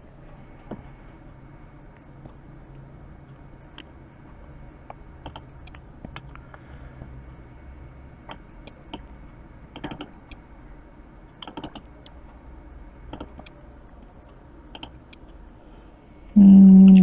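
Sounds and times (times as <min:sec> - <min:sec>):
low steady hum: 0:00.0 - 0:17.0
computer mouse clicking: 0:04.9 - 0:06.4, 0:09.8 - 0:10.4, 0:11.4 - 0:12.2, 0:13.1 - 0:13.6, 0:14.7 - 0:15.2.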